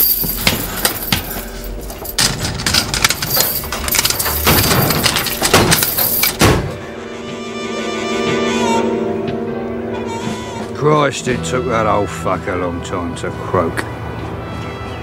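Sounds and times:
orchestral string music: 1.5s - 15.0s
metal bars smashing into metal boxes: 2.1s - 6.8s.

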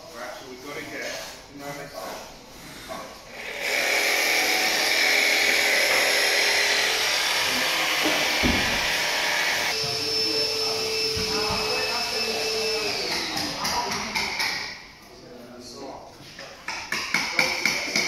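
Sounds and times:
jigsaw cutting plywood: 3.4s - 10.3s.

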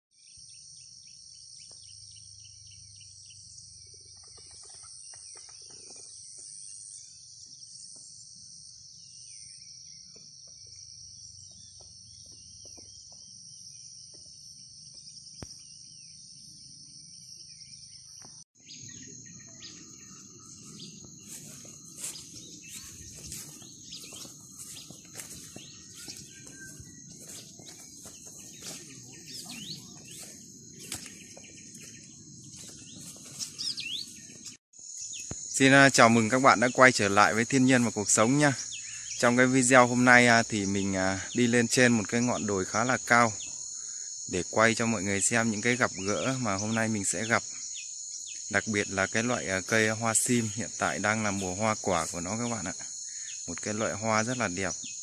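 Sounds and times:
bird chirps: 0.2s - 55.0s
insects shrilling: 18.6s - 55.0s.

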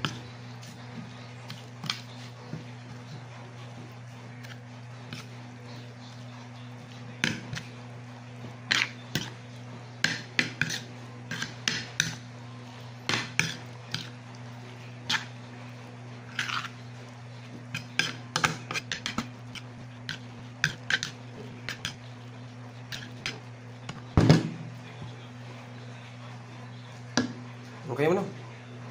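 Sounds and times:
metal spoon scraping ceramic plate: 16.3s - 16.8s.

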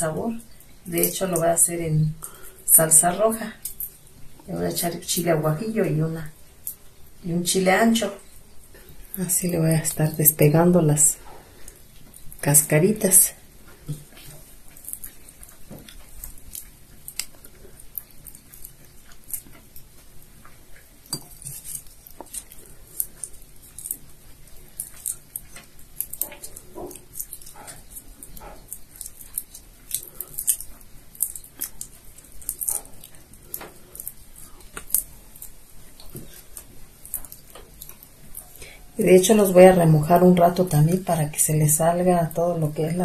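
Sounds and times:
dried shrimp shells crackling: 13.6s - 39.6s
dog: 21.4s - 39.0s.

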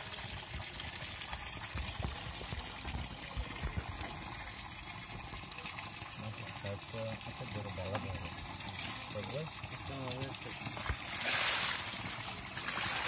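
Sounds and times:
fish thrashing in shallow water: 10.8s - 13.0s.

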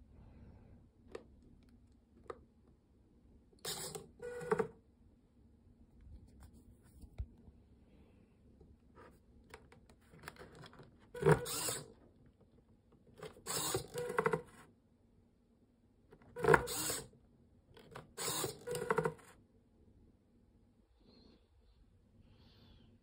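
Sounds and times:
servo motors whirring: 3.7s - 4.5s, 11.2s - 11.9s, 13.4s - 14.5s, 16.4s - 17.1s, 18.1s - 19.2s.

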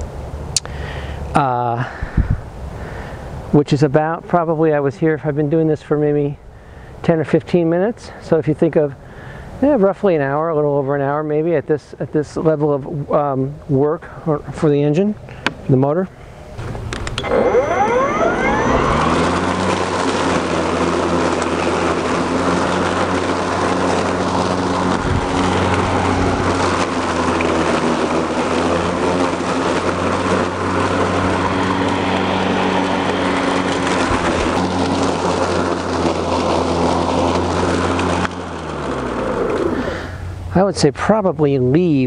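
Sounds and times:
cordless lawn mower whirring: 16.2s - 40.6s.

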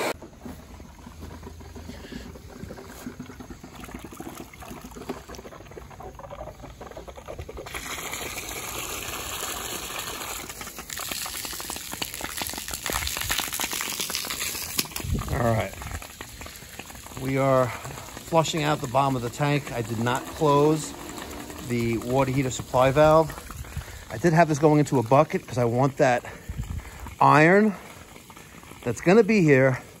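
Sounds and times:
water gushing from hose: 0.0s - 30.0s
water splashing into bucket: 0.0s - 30.0s.

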